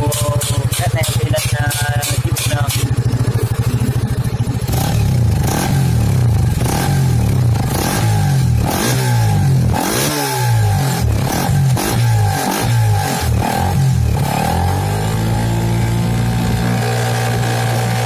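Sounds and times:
motorcycle engine revving: 0:00.0 - 0:18.0.

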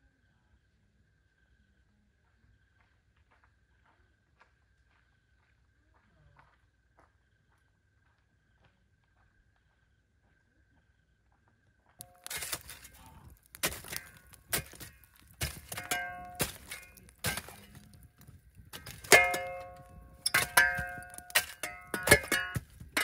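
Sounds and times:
metal tool clanking on stones: 0:12.0 - 0:23.0.

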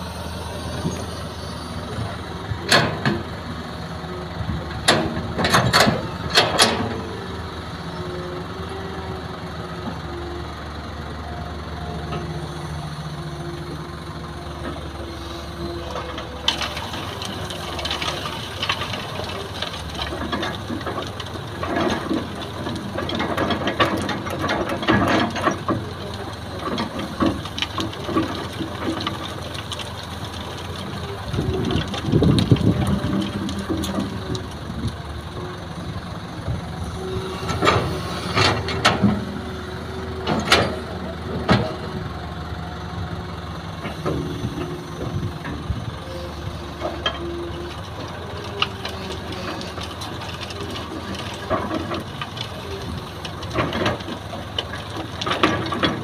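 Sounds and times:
excavator diesel engine running: 0:00.0 - 0:56.0
sand and gravel rattling on screen: 0:14.7 - 0:36.1, 0:43.8 - 0:56.0.

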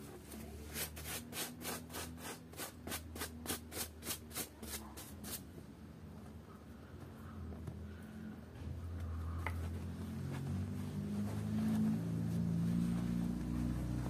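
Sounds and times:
hand brush scrubbing: 0:00.6 - 0:05.4.

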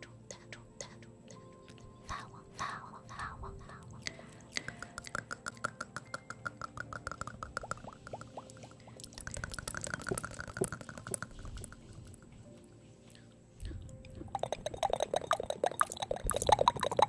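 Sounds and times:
wet tongue and lip clicks: 0:03.6 - 0:12.3, 0:13.6 - 0:17.0
small mouth pops: 0:04.0 - 0:08.6, 0:09.2 - 0:11.8.

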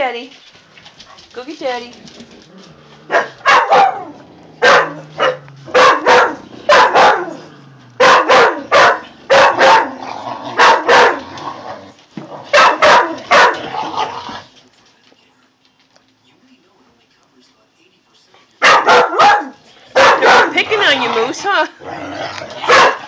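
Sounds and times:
dogs barking: 0:03.1 - 0:11.4, 0:12.4 - 0:14.1, 0:18.6 - 0:21.6, 0:22.4 - 0:23.0.

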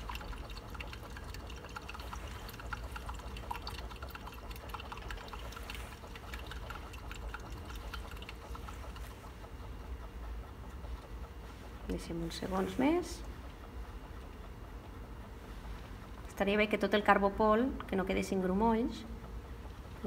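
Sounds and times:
liquid swirling: 0:00.0 - 0:12.9
magnetic stirrer humming: 0:00.0 - 0:14.6.

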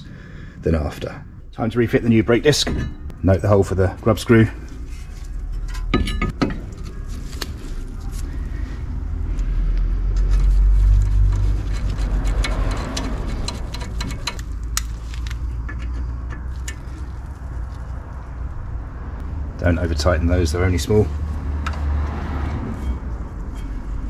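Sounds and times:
vehicle passing by: 0:07.0 - 0:24.0.

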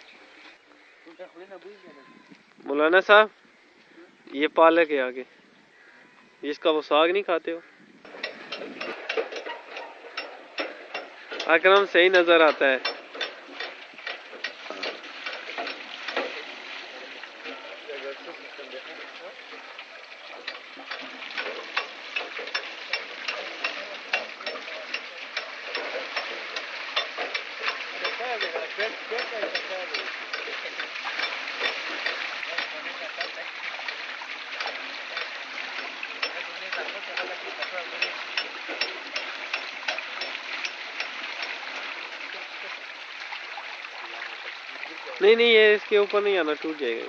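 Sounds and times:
water splashing from buckets: 0:06.9 - 0:47.0
gearing and ratchet clacking: 0:08.1 - 0:16.4, 0:19.8 - 0:41.9.

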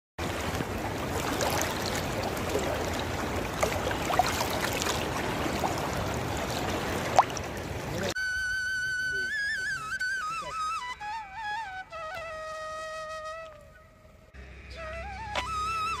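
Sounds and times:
stream running over pebbles: 0:00.2 - 0:08.2
water bubbling plop: 0:01.0 - 0:06.0, 0:07.0 - 0:07.5.

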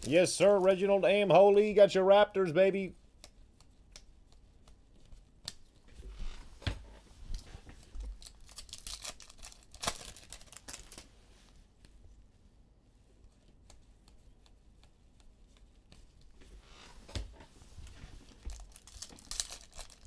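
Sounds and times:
cards and packaging handled: 0:00.0 - 0:00.9, 0:07.3 - 0:11.1, 0:18.2 - 0:20.0
rustling scrapes: 0:16.4 - 0:20.0.

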